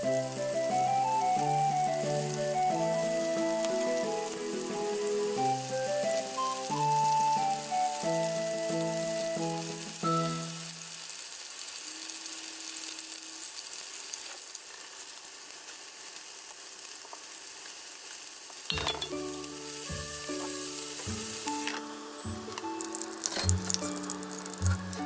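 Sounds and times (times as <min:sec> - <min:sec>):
plucked background music: 0:00.0 - 0:10.6, 0:18.7 - 0:25.0
oil sizzling in frying pans: 0:00.0 - 0:25.0.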